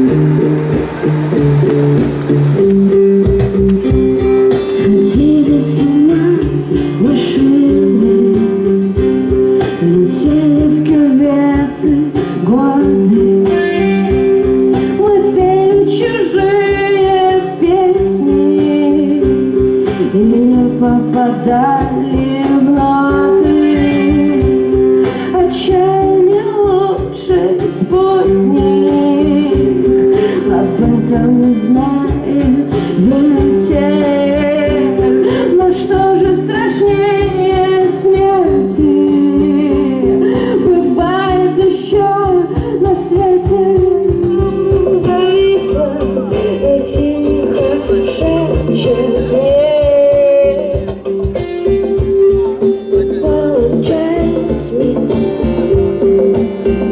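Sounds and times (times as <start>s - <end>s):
electric guitar: 0.0s - 56.9s
person singing: 0.0s - 56.9s
steady drum beat: 0.0s - 56.9s.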